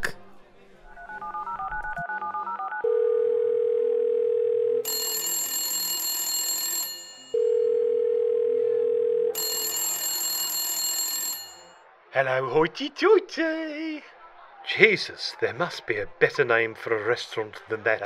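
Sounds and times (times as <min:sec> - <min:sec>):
electronic phone ringing: 0:01.0 - 0:11.8.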